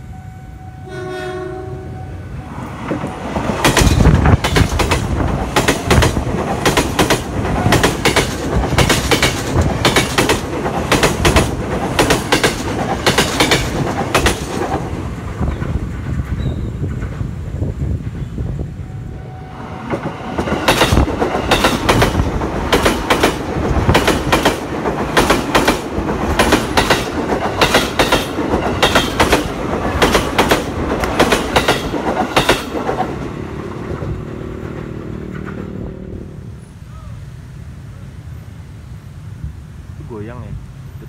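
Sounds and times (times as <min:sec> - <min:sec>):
train rumble: 0:00.0 - 0:41.0
train wheels clacking over rail joint: 0:03.0 - 0:17.3, 0:19.9 - 0:33.2.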